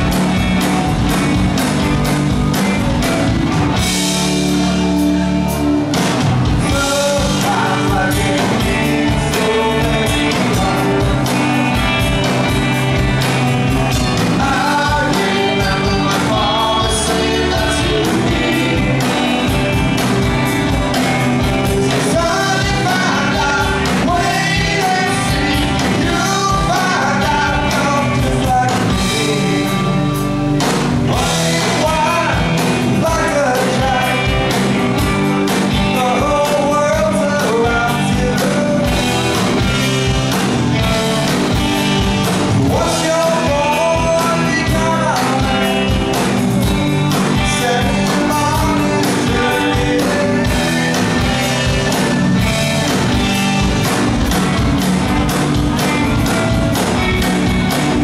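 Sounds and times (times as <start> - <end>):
live rock band playing: 0.0 - 58.0
man singing: 6.6 - 11.5, 13.8 - 19.8, 21.4 - 30.1, 31.1 - 34.7, 35.5 - 39.3, 42.6 - 46.2, 47.2 - 51.8.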